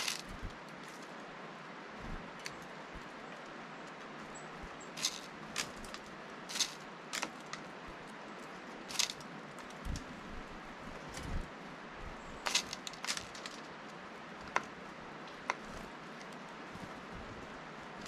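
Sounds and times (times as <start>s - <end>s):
beak pecking seeds: 0.0s - 18.0s
outdoor hiss: 0.0s - 18.0s.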